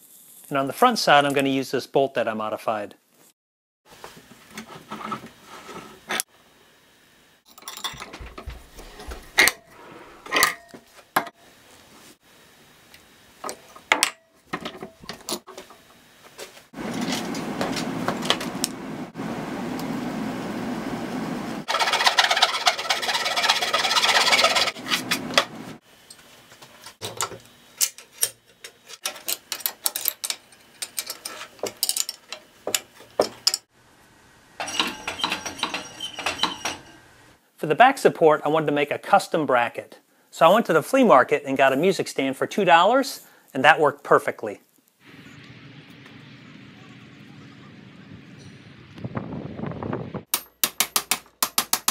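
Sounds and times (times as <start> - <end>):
metal scraping and grinding: 21.7 - 25.7, 34.6 - 37.1.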